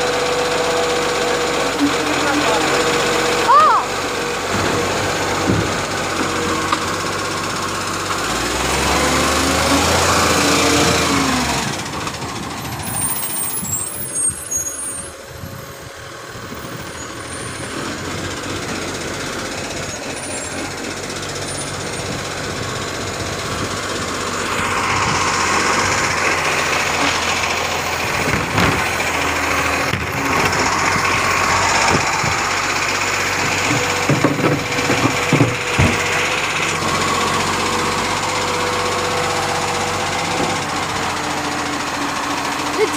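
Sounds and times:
garbage truck engine running: 0:00.0 - 0:42.9.

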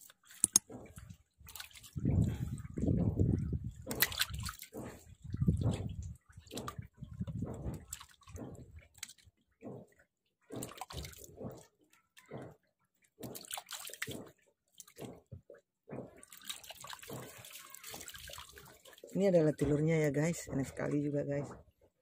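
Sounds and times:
knife cutting and scraping fish: 0:00.0 - 0:12.6.

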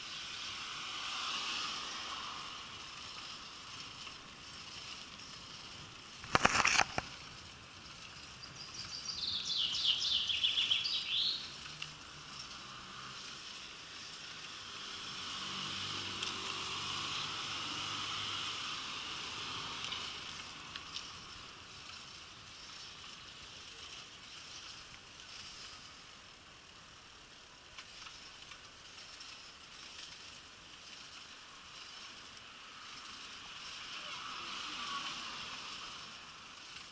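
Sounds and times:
car passing: 0:00.0 - 0:06.2, 0:09.1 - 0:23.8, 0:31.0 - 0:36.8
sharp clatter: 0:03.0 - 0:08.3
songbird trilling: 0:08.4 - 0:11.4.

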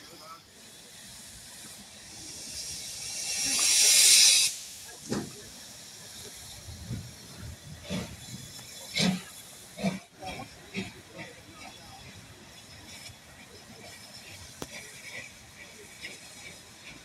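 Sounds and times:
steam locomotive hissing steam: 0:00.0 - 0:17.0.

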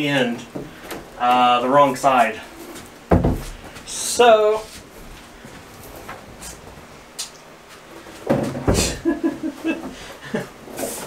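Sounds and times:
plastic panel knocking and scraping: 0:03.1 - 0:03.6.

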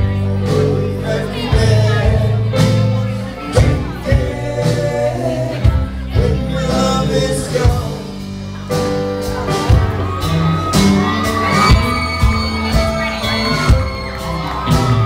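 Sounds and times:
male singer: 0:00.0 - 0:08.5
bass: 0:00.0 - 0:15.0
drums: 0:00.0 - 0:15.0
electric guitars: 0:00.0 - 0:15.0
keyboard: 0:00.0 - 0:15.0.

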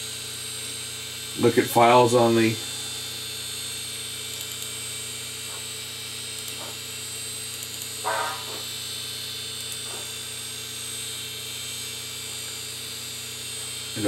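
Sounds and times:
hard drive motor whine and hum: 0:00.0 - 0:14.0.

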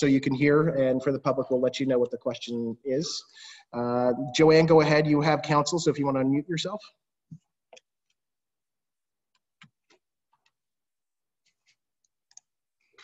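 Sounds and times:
faint clicks and taps: 0:07.3 - 0:08.2.

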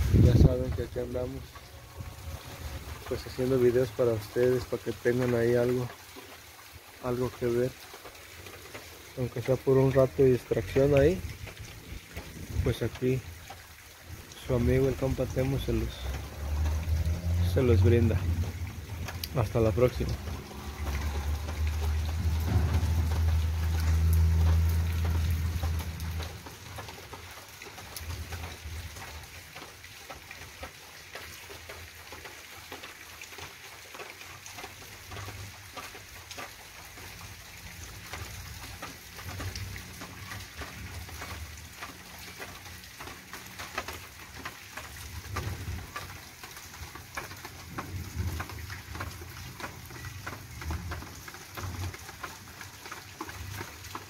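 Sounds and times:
low rumbles: 0:00.0 - 0:04.3, 0:14.0 - 0:27.3
water drops pattering: 0:00.4 - 0:54.0.

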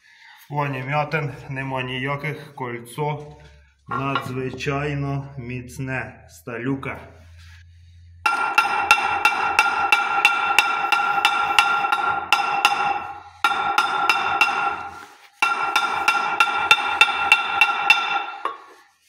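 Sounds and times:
hammer blows on steel: 0:08.2 - 0:18.5.

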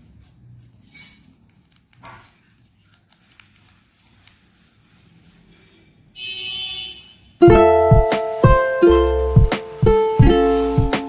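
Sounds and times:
paper rustling and clicks: 0:00.2 - 0:04.8.

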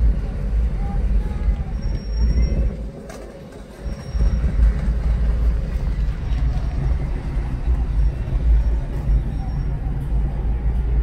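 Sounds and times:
car rumble from inside cabin: 0:03.9 - 0:11.0.

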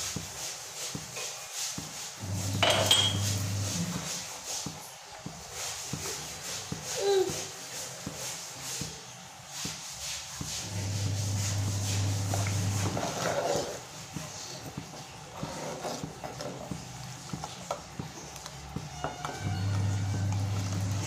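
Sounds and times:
ladle scraping metal pot: 0:02.2 - 0:04.3, 0:10.6 - 0:14.0, 0:15.2 - 0:16.7, 0:19.0 - 0:21.0.

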